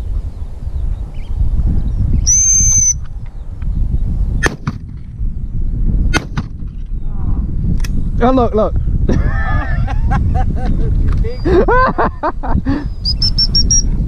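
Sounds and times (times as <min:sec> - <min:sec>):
wind buffeting microphone: 0:00.0 - 0:14.0
dog whistle blast: 0:02.3 - 0:03.0.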